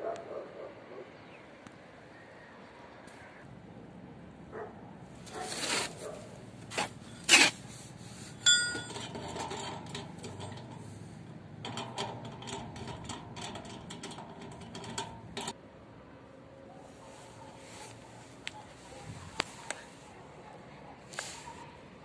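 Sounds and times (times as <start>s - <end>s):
ringing metal clank: 8.4s - 10.9s
small rattling clicks: 8.5s - 11.0s, 11.6s - 15.6s.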